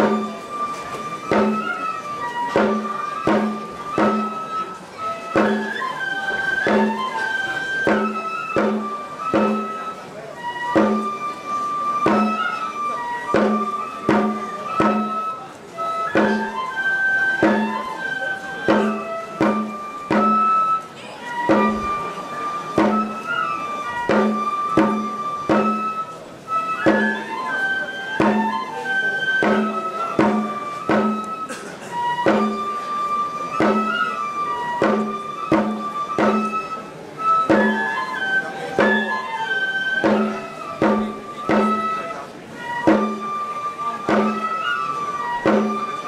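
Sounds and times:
bamboo flute melody: 0.0s - 46.0s
steady drum beat: 10.8s - 11.1s.

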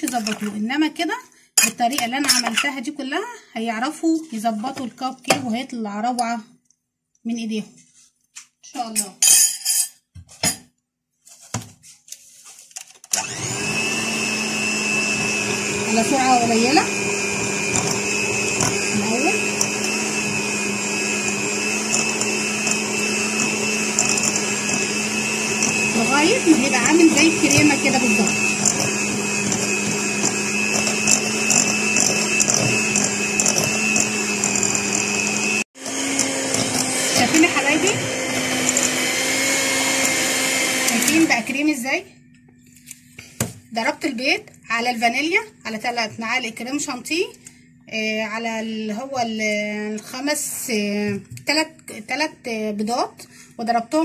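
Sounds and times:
electric hand mixer running: 13.1s - 41.8s.

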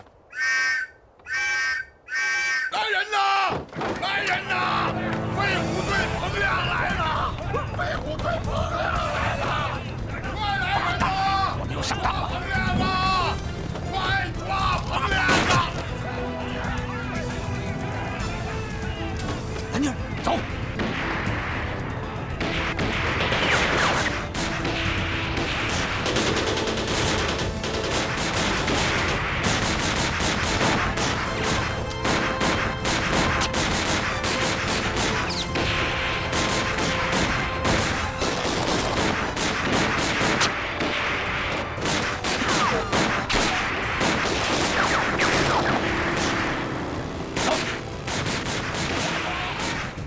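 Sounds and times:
film score music: 0.0s - 3.0s, 3.7s - 50.0s
rapid gunfire volleys: 22.3s - 50.0s.

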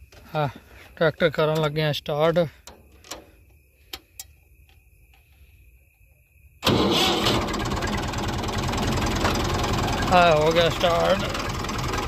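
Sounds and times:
tractor diesel engine idling: 6.6s - 12.0s.

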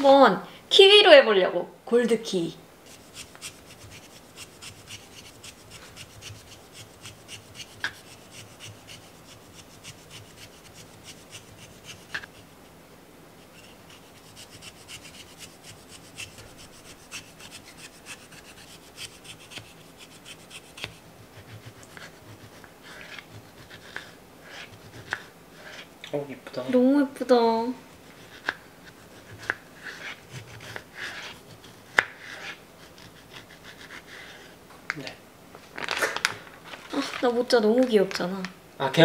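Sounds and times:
peeler scraping fruit skin: 2.9s - 12.4s, 13.4s - 25.9s.

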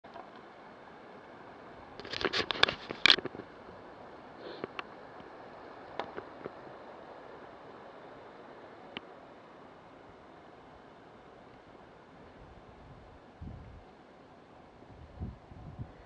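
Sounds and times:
wind and road noise: 0.1s - 16.0s.

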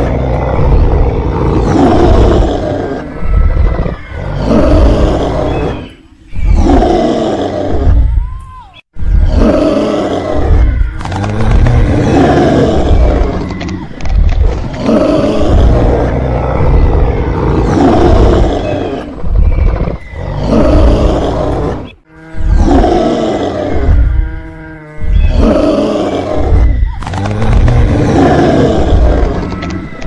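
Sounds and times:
dinosaur roars: 0.0s - 8.2s, 9.0s - 30.0s
pitched bellowing call: 14.7s - 30.0s.

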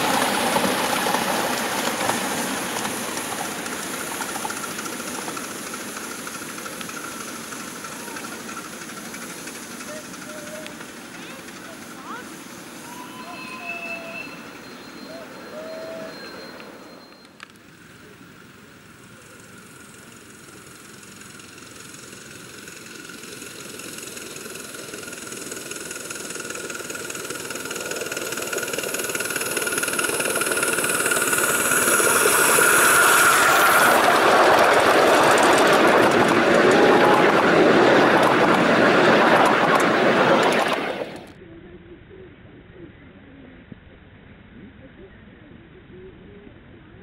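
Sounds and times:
model steam locomotive running: 0.0s - 41.4s
steady ringing tone: 19.3s - 39.2s.

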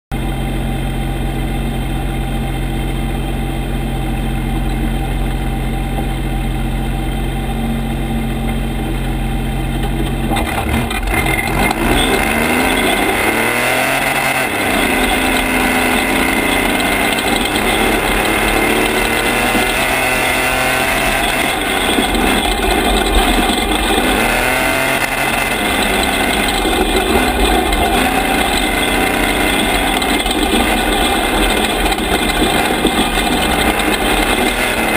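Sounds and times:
truck engine idling and revving: 0.1s - 34.9s
tyre and gravel noise: 9.8s - 34.9s.

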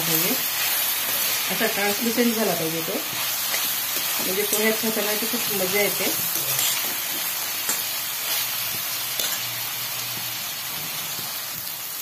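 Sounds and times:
food sizzling in hot oil: 0.0s - 12.0s
metal spoon stirring: 6.3s - 7.9s.

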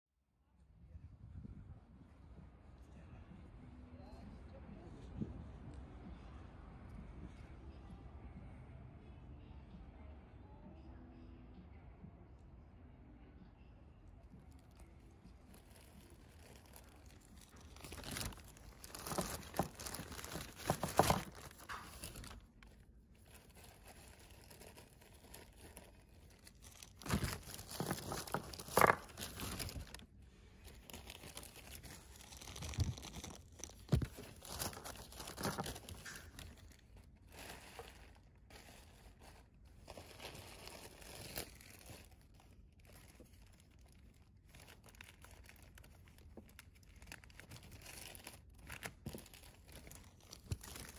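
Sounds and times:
plastic bag crinkling: 15.4s - 50.9s.

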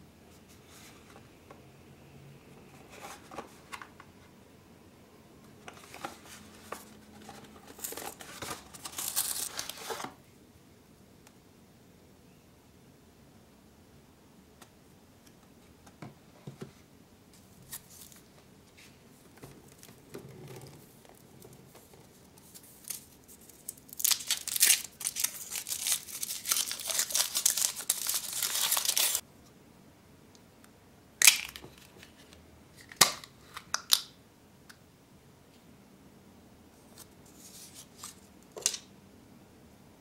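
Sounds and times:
foil wrapper crinkling and tearing: 7.7s - 10.0s, 22.5s - 29.2s.

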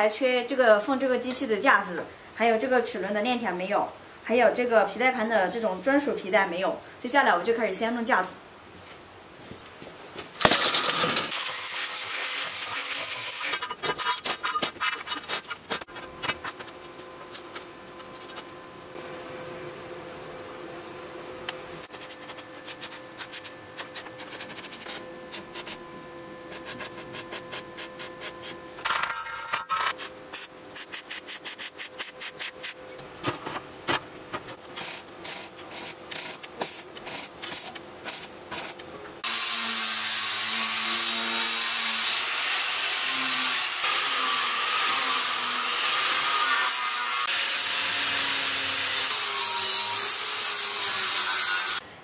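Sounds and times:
arc welder crackling: 10.3s - 18.6s, 21.4s - 25.8s, 26.5s - 32.8s, 34.5s - 51.8s
angle grinder grinding: 10.6s - 18.5s, 39.2s - 51.8s.

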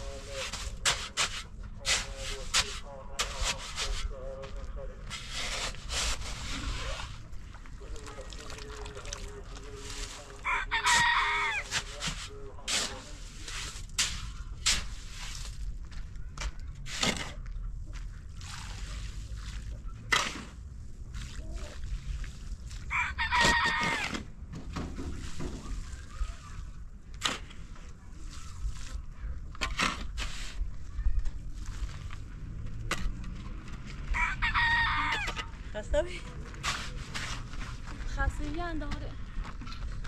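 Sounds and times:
rooster crowing: 10.4s - 11.7s, 22.9s - 24.1s, 34.1s - 35.4s.

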